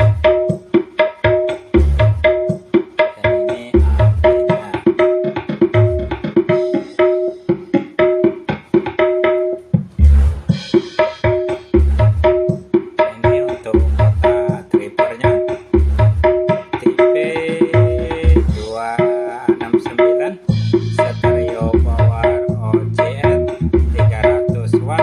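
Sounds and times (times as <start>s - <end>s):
deep bass thumps: 0.0s - 0.7s, 1.6s - 2.7s, 3.8s - 4.6s, 5.6s - 6.4s, 9.8s - 10.8s, 11.7s - 12.7s, 13.7s - 14.7s, 15.8s - 16.4s, 17.8s - 18.8s, 20.5s - 25.0s
hand drum music: 0.0s - 25.0s.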